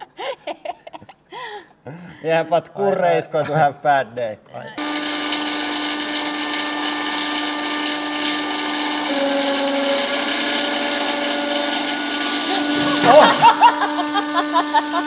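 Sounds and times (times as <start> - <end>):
angle grinder whining: 4.8 - 15.0.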